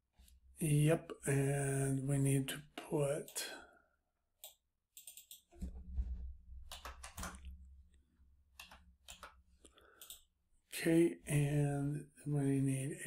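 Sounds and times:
computer mouse clicks: 0:04.4 - 0:05.6, 0:08.6 - 0:09.4, 0:10.0 - 0:10.3.

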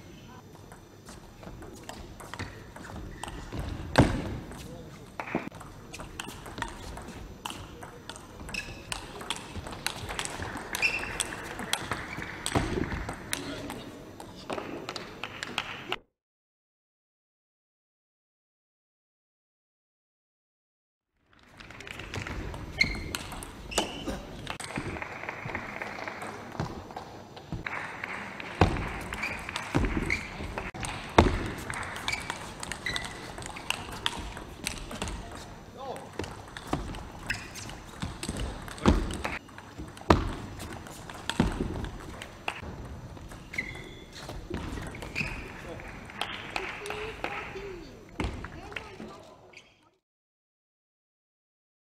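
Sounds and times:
shoe squeak: 0:08.5 - 0:08.9, 0:10.7 - 0:11.4, 0:22.7 - 0:24.2, 0:29.2 - 0:30.7, 0:32.0 - 0:34.0, 0:37.2 - 0:38.0, 0:43.3 - 0:45.6, 0:49.5 - 0:50.0
arena crowd noise: 0:23.8 - 0:36.0, 0:44.5 - 0:49.6.

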